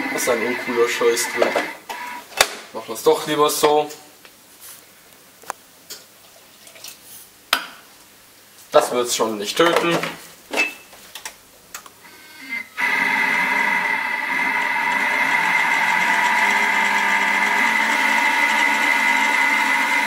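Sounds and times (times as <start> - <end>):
food processor motor whining: 0.0 - 2.2, 12.1 - 20.0.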